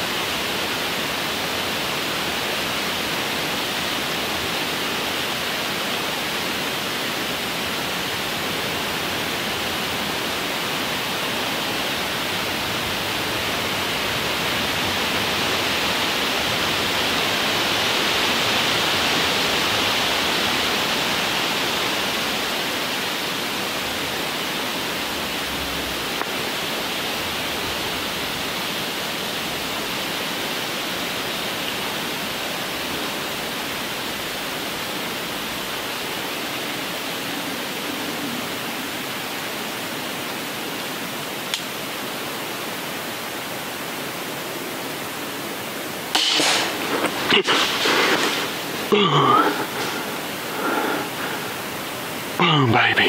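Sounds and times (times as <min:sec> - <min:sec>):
wind rushing through trees: 0:00.0 - 0:53.0
faint click: 0:41.5 - 0:41.7.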